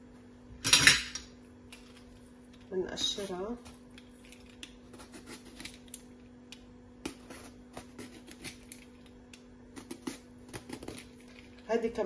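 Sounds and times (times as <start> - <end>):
faint steady hum: 0.0 - 12.0
vegetable peeler scraping eggplant: 4.4 - 6.0, 7.0 - 8.9, 9.7 - 11.2.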